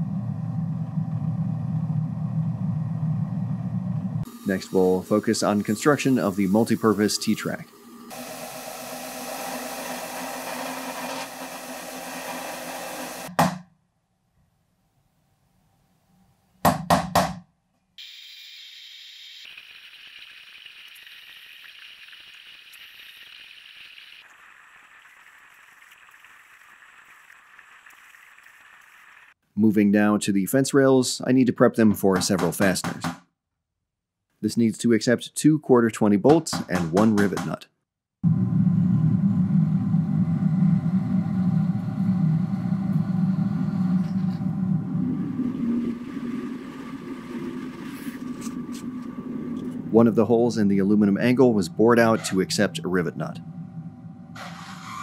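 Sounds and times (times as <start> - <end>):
drill press whirring through metal: 8.0 - 13.3.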